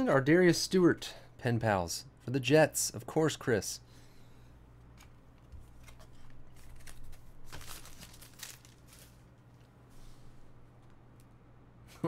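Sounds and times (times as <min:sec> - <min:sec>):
cards and packs crinkling: 0:05.7 - 0:09.8.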